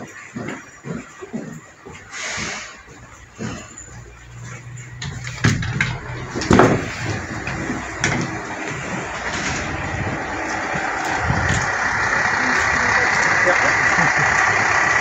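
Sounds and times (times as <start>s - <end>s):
diesel railcar idling: 0.0s - 15.0s
sharp knocks: 5.0s - 11.6s
loud thump: 5.4s - 8.4s.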